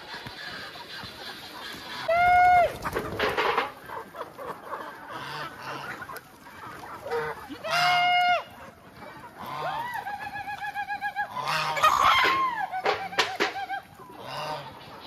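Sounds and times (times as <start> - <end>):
chickens clucking: 0.0 - 15.0
chickens scuffling: 0.0 - 15.0
loud short chicken calls: 9.4 - 14.8.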